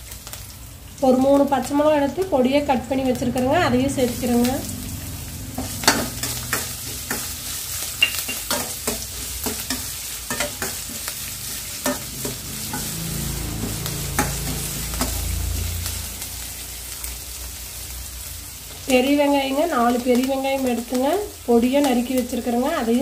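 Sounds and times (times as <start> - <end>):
food sizzling in hot oil: 0.0 - 23.0
spoon scraping metal pan: 5.6 - 15.3.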